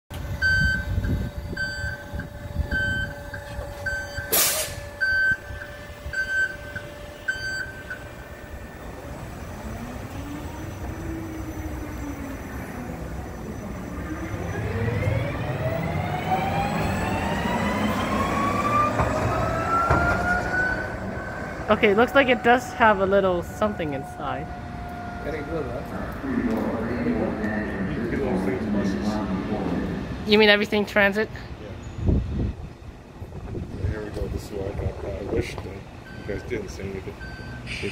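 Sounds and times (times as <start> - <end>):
bus warning beeps: 0.1 - 24.7, 36.0 - 37.9
electric motor whine: 0.1 - 26.6
sharp air hiss: 4.3 - 4.8.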